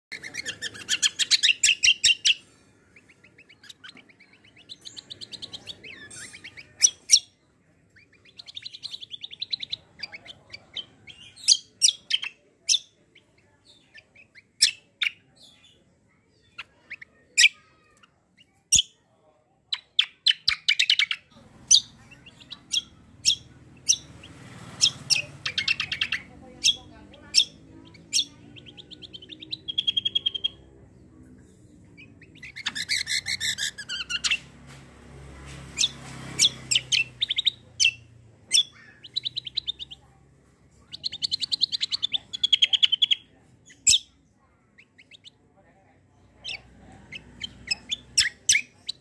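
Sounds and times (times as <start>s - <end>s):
sharp bird chirps: 0.1s - 7.4s, 19.8s - 30.6s, 31.9s - 34.5s, 35.8s - 40.0s
songbird singing trills: 0.1s - 19.0s, 19.7s - 34.5s, 35.8s - 40.1s, 40.8s - 45.4s, 46.4s - 49.0s.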